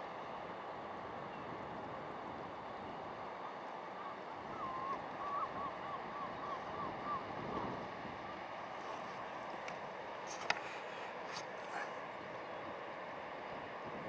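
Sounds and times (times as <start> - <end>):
coastal wind: 0.0 - 14.0
sea noise: 0.0 - 14.0
thin wavering whistled notes: 4.5 - 7.2.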